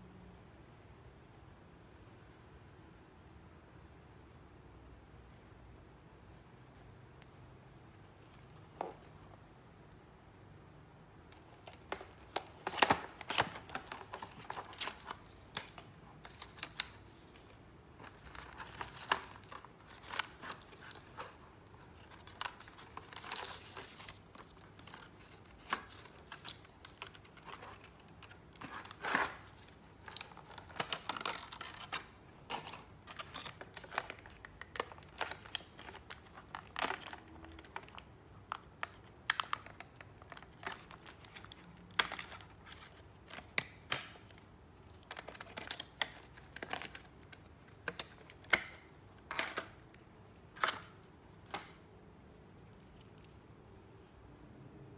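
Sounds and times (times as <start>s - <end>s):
plastic packaging crackling: 11.4s - 51.8s.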